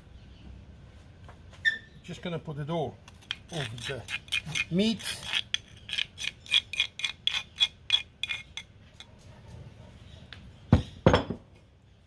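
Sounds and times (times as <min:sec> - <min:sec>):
metal spoon tapping stone mortar: 0:03.2 - 0:08.7.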